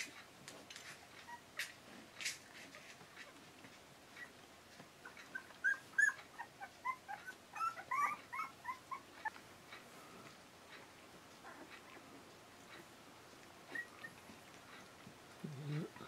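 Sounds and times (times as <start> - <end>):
puppies squeaking and whimpering: 0.9 - 3.4, 4.1 - 4.4, 5.0 - 9.4, 11.4 - 12.9, 13.6 - 16.0.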